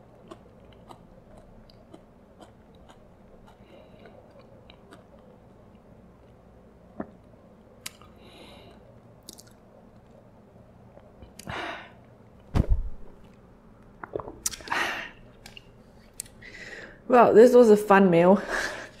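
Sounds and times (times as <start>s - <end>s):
close-miked chewing: 0.0s - 6.6s
dull thump: 12.5s - 13.1s.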